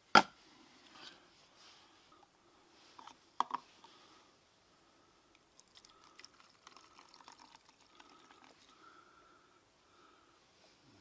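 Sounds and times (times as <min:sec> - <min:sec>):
liquid fuel pouring into tub: 0:05.6 - 0:08.8.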